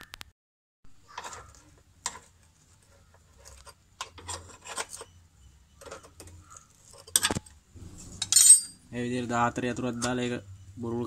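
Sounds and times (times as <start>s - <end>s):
spanner metal clicks and scrapes: 3.4s - 5.2s, 5.8s - 7.6s.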